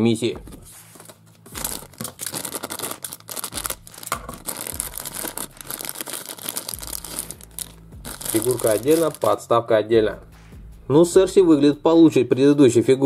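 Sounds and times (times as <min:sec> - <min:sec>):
plastic packet crinkling: 0:01.0 - 0:09.4.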